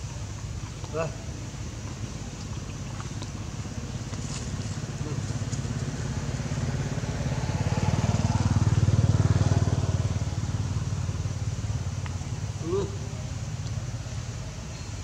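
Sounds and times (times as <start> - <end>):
vehicle engine passing by: 3.6 - 14.4.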